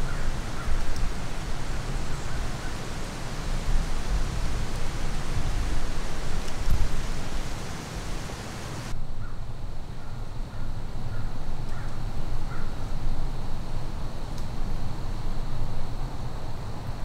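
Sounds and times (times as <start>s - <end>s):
faint bird calls: 0.0s - 0.8s, 10.0s - 12.9s
steady hiss: 0.0s - 17.0s.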